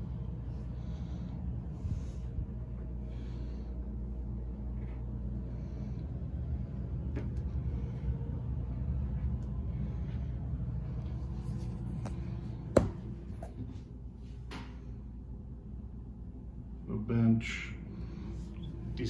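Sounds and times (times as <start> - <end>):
low rumble and hum: 0.0 - 19.0.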